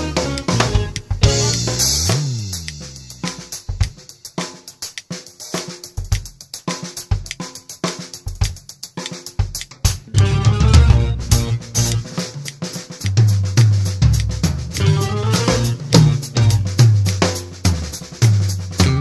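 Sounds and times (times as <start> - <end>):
faint backing track: 0.0 - 4.0, 9.5 - 19.0
acoustic drum kit: 0.0 - 19.0.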